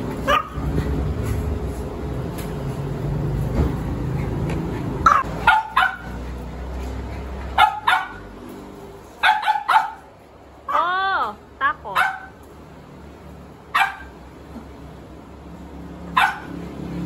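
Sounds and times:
dog yelping: 0:00.2 - 0:00.7, 0:05.0 - 0:06.5, 0:07.4 - 0:08.3, 0:09.2 - 0:10.1, 0:11.9 - 0:12.4, 0:13.8 - 0:14.1, 0:16.1 - 0:16.6
small dogs yapping: 0:00.2 - 0:00.9, 0:05.0 - 0:08.4, 0:09.2 - 0:10.1, 0:16.1 - 0:16.6.

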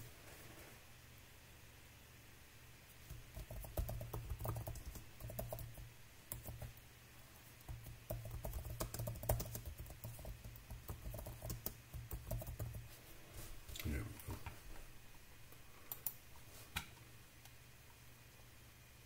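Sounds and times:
typing on computer keyboard: 0:03.1 - 0:06.8, 0:07.7 - 0:12.8.

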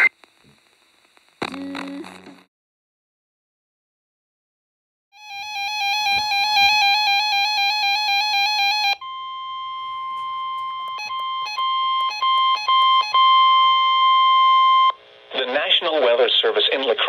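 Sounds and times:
steady alarm tone: 0:05.2 - 0:14.9
warbling radio alarm: 0:05.2 - 0:14.9.

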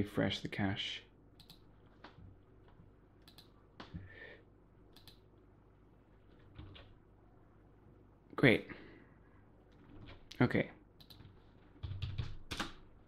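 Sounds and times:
mouse and keyboard clicks: 0:03.2 - 0:04.0, 0:04.9 - 0:05.2.

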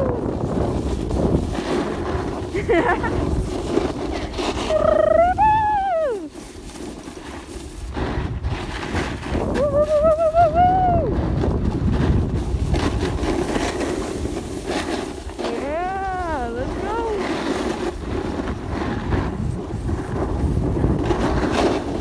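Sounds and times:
snowboard sliding on snow: 0:00.0 - 0:22.0
wind on microphone: 0:00.0 - 0:22.0
person singing whoo: 0:04.7 - 0:06.3, 0:09.5 - 0:11.2.

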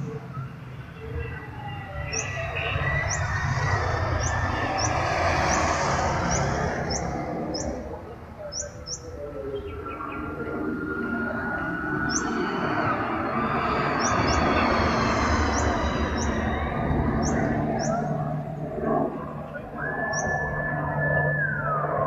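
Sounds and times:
motorcycle passing: 0:00.0 - 0:09.0, 0:09.7 - 0:21.9.

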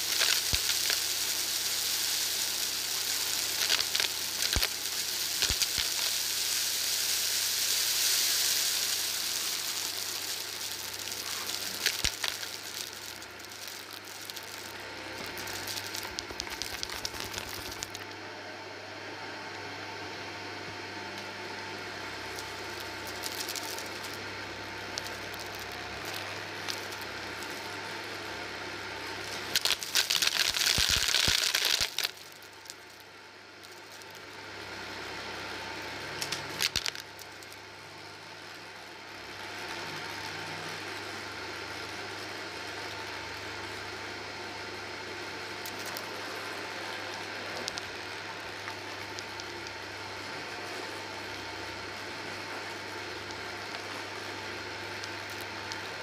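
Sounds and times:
vacuum cleaner motor hum: 0:00.0 - 0:32.3
debris clicks and crackles: 0:08.3 - 0:18.0, 0:29.5 - 0:33.0, 0:36.2 - 0:37.6, 0:45.6 - 0:46.1.

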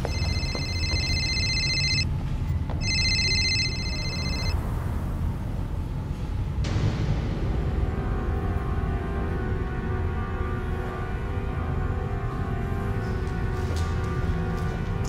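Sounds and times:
electronic telephone ringing: 0:00.0 - 0:02.1, 0:02.8 - 0:04.6
steady low rumble: 0:00.1 - 0:15.0.

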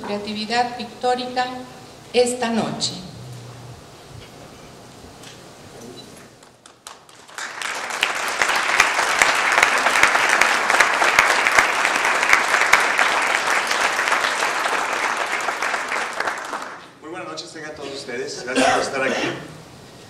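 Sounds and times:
audience applauding: 0:06.4 - 0:17.0.

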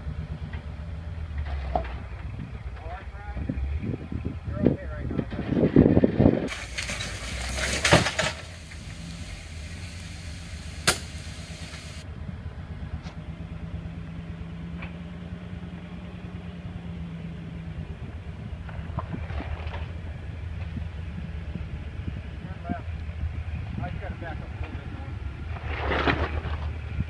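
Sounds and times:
vehicle engine running low: 0:00.0 - 0:27.0
sharp knock: 0:10.8 - 0:11.1.

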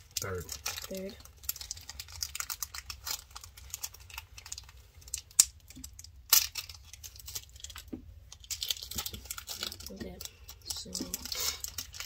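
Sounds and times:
foil wrapper crinkling: 0:00.0 - 0:12.0.

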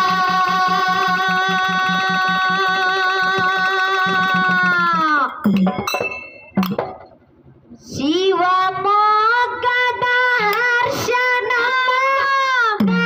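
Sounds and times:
woman singing a long note: 0:00.0 - 0:05.4.

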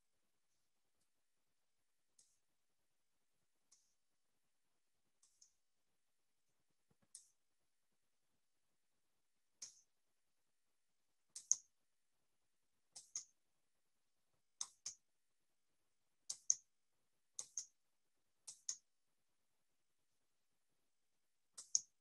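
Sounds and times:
computer mouse clicks: 0:11.4 - 0:11.7, 0:13.0 - 0:13.4, 0:17.4 - 0:17.8, 0:18.5 - 0:18.8, 0:21.6 - 0:22.0.

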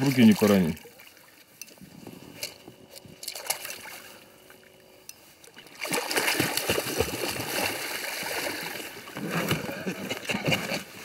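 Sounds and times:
fish splashing in water: 0:03.2 - 0:04.7, 0:05.5 - 0:09.2.

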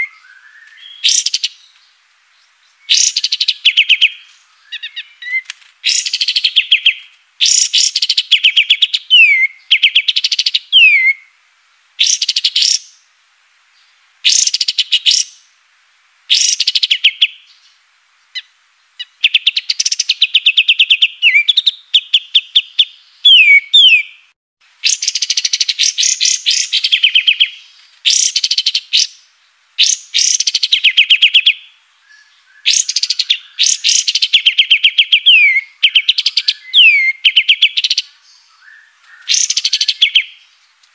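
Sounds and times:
songbird singing rapid high notes: 0:00.0 - 0:01.7, 0:02.8 - 0:11.2, 0:12.0 - 0:13.0, 0:19.0 - 0:24.2, 0:24.8 - 0:29.2, 0:29.8 - 0:40.5.

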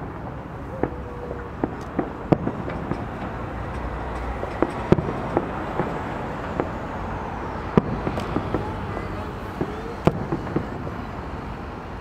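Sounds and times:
fireworks bursting: 0:00.0 - 0:12.0
steady background noise: 0:00.0 - 0:12.0.

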